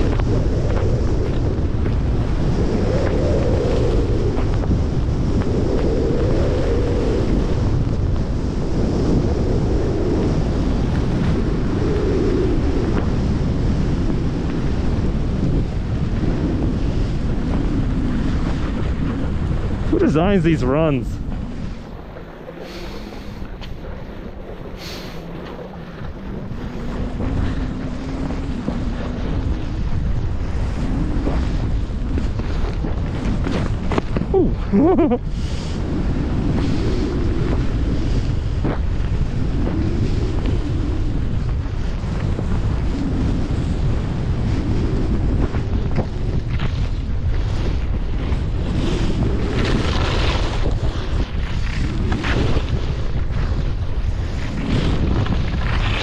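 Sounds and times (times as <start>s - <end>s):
wind buffeting microphone: 0.0s - 56.0s
skis hissing over packed snow: 22.5s - 24.0s, 24.6s - 25.9s, 34.6s - 38.6s, 46.6s - 56.0s.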